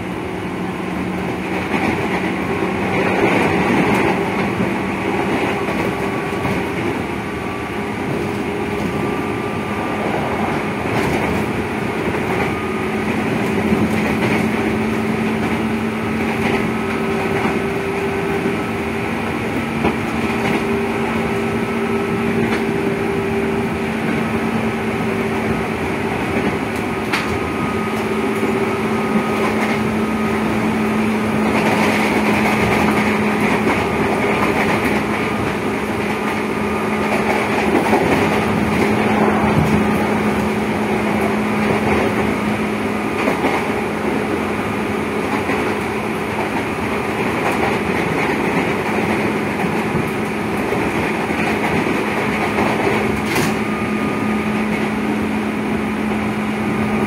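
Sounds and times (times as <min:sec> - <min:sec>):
wheel and rail noise: 0:00.0 - 0:57.0.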